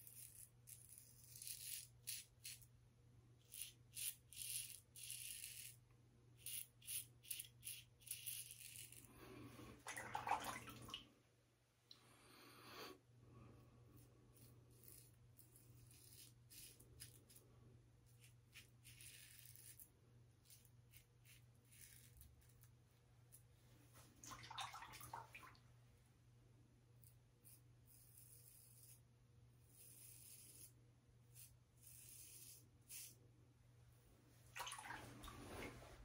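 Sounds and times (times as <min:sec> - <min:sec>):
razor scraping stubble: 0:00.0 - 0:02.7, 0:03.4 - 0:05.8, 0:06.4 - 0:09.2, 0:14.0 - 0:17.4, 0:18.0 - 0:22.7, 0:27.4 - 0:29.0, 0:29.6 - 0:33.2.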